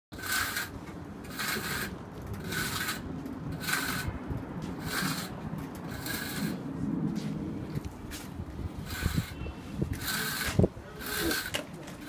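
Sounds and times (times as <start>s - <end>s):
hand trowel scraping mortar on stone: 0.1s - 4.2s, 4.8s - 6.6s, 8.8s - 12.0s.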